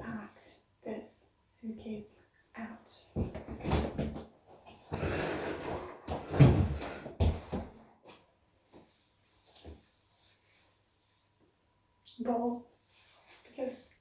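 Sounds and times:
suitcase scraping and rustling: 4.9 - 7.8.

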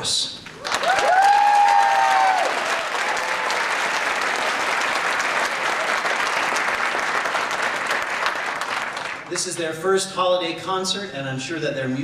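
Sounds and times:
audience applauding: 0.6 - 9.4.

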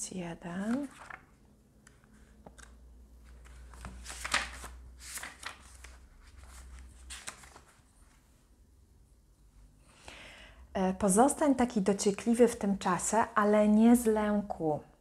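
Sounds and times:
book pages rustling: 0.5 - 8.4.

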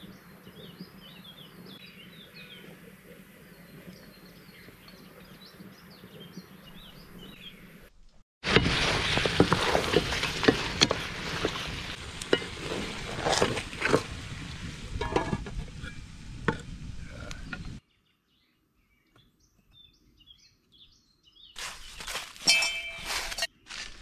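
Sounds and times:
food sizzling and popping: 8.4 - 17.8.

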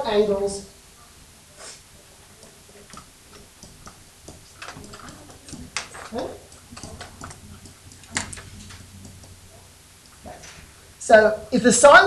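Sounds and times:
stylus tapping on whiteboard: 2.4 - 10.4.

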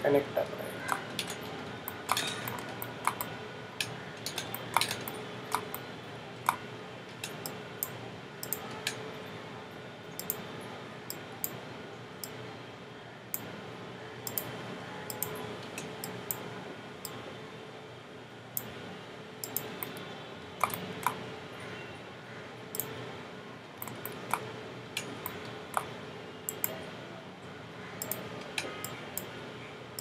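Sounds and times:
mouse and keyboard clicks: 0.8 - 5.8, 6.4 - 6.6, 7.2 - 9.0, 14.3 - 14.5, 20.6 - 21.2, 23.8 - 25.9, 28.0 - 29.3.

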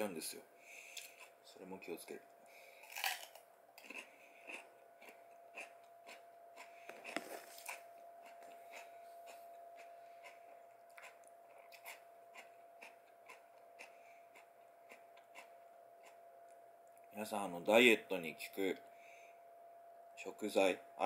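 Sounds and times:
faint steady hum: 0.0 - 21.0
cucumber crunching while chewed: 2.8 - 8.9, 9.8 - 16.2.

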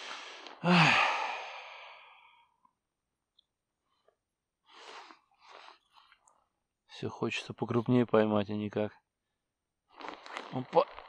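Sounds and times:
man sighing: 0.5 - 2.3.

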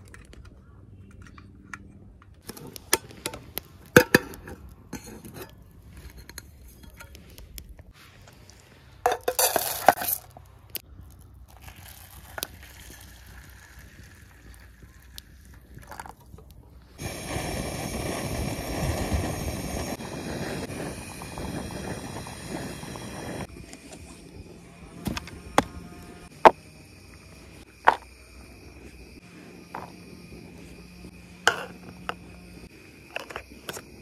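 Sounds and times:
camp cookware clattering: 2.4 - 7.2, 9.0 - 10.3, 31.5 - 32.2
steady hiss: 16.9 - 23.5.

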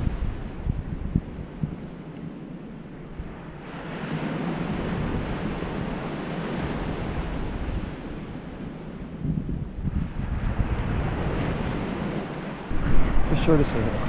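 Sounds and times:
wind buffeting microphone: 0.0 - 14.0
ocean surf breaking: 3.1 - 9.2, 9.8 - 14.0.

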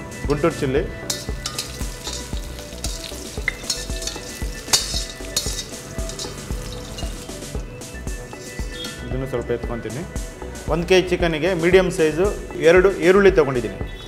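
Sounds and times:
chillies and garlic sizzling in oil: 0.6 - 9.4
ladle scraping and clicking on wok: 1.0 - 7.6, 8.2 - 9.0.

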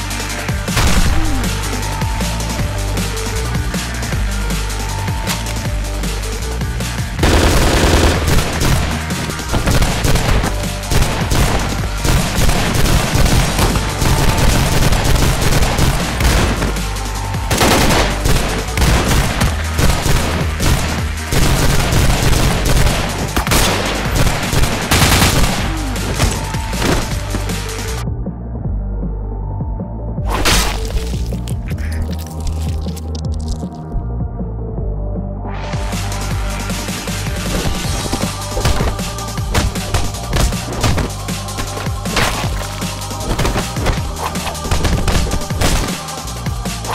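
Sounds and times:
loud background music: 0.0 - 46.9
automatic gunfire bursts: 7.2 - 16.6, 17.5 - 25.8.

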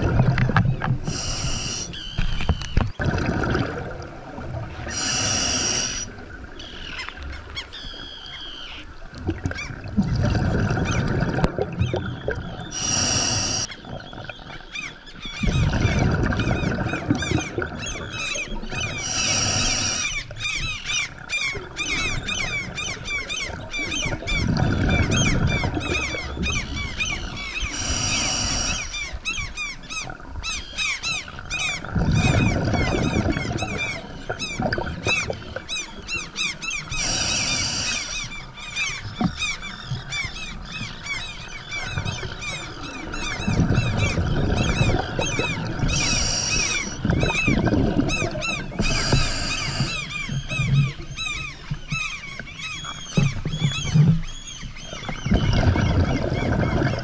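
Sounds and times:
rumbling exhaled bubbles: 0.0 - 7.3, 8.9 - 29.3, 31.3 - 40.1, 41.7 - 51.2, 54.8 - 57.0
high chirping crackle: 0.6 - 3.0, 4.9 - 8.9, 10.8 - 15.7, 35.7 - 57.0
regulator hissing inhalations: 1.1 - 2.0, 4.9 - 6.1, 12.7 - 13.7, 19.0 - 20.2, 27.7 - 28.9, 37.0 - 38.2, 46.0 - 47.0, 48.8 - 50.0.

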